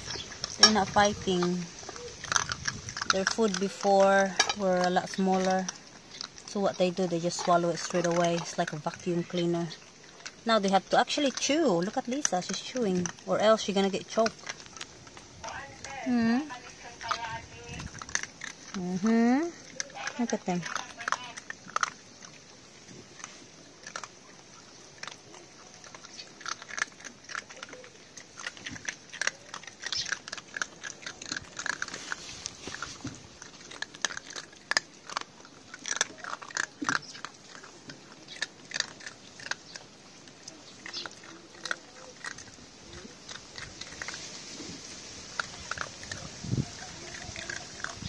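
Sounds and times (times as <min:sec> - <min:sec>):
puppies crunching dry kibble: 0:00.0 - 0:48.0.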